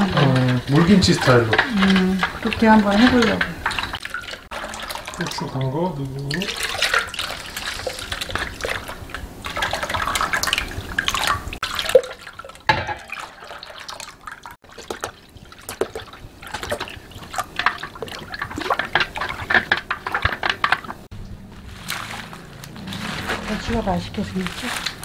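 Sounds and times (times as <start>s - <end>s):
brine stirring: 0.0s - 25.0s
liquid pouring in thin stream: 4.5s - 19.5s.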